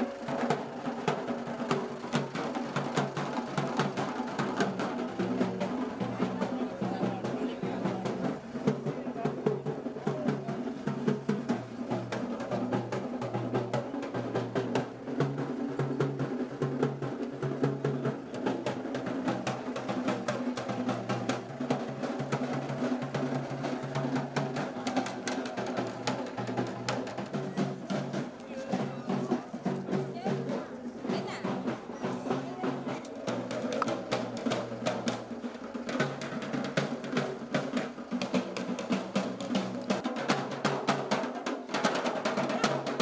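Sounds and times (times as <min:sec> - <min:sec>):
drums playing fast rhythm: 0:00.0 - 0:43.0.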